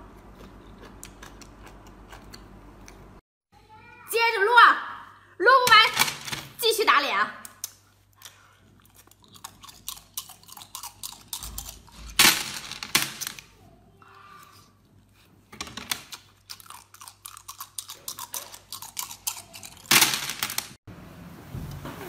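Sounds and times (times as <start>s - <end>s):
wet chewing mouth sounds: 0.0s - 3.1s, 8.0s - 12.0s, 16.3s - 19.9s.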